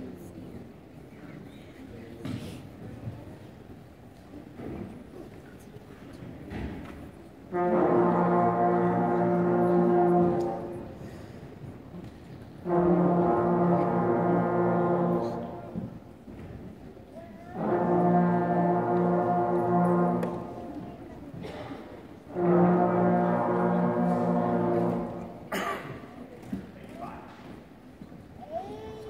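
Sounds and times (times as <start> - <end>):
band playing long held note: 7.5 - 11.4, 12.6 - 16.0, 17.4 - 20.9, 22.3 - 25.7.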